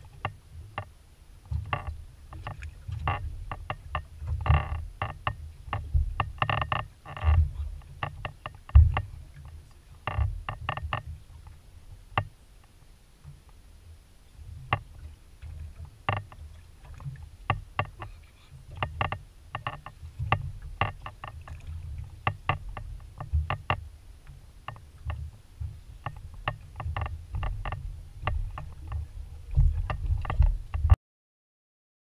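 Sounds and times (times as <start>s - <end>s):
wind and water rumble: 0.0s - 31.0s
sharp knocks and clicks: 1.5s - 9.5s, 14.7s - 18.1s, 18.7s - 31.0s.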